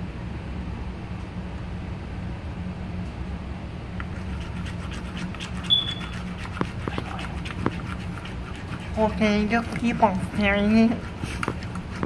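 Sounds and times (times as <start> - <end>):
steady low hum: 0.0 - 12.0
spoon scraping plastic bowl: 4.1 - 12.0
high squeak: 5.7 - 6.2.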